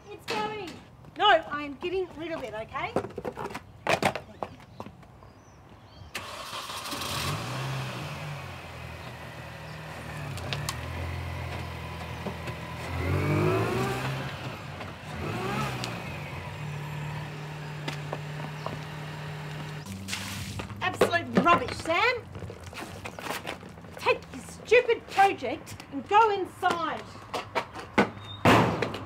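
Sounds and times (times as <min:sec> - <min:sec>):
car engine starting and revving: 0:06.2 - 0:20.8.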